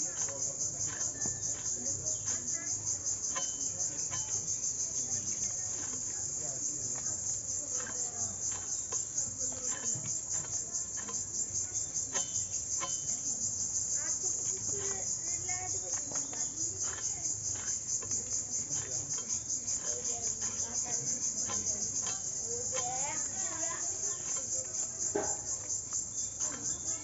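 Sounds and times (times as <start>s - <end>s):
crickets chirping: 0.0s - 27.0s
fish being scaled with blade: 7.6s - 13.4s, 15.9s - 25.5s.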